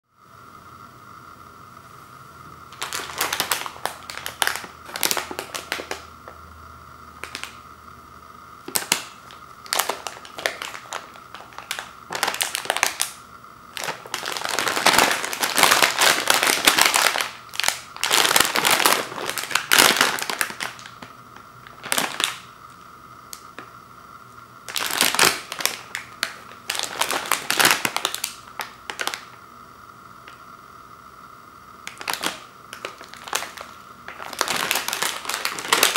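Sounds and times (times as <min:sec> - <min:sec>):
plastic snack bag crinkling: 0:02.7 - 0:06.4, 0:07.2 - 0:07.6, 0:08.6 - 0:22.6, 0:24.6 - 0:29.4, 0:31.8 - 0:35.9
pretzel pieces rattling in bag: 0:02.8 - 0:06.0, 0:13.8 - 0:20.9, 0:31.9 - 0:35.9.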